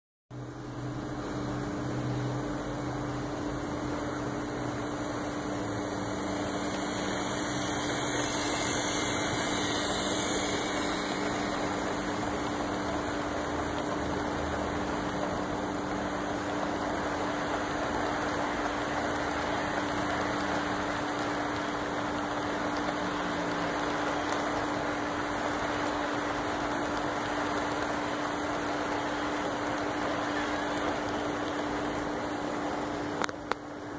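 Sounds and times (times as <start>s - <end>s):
model train rolling on track: 0.6s - 33.9s.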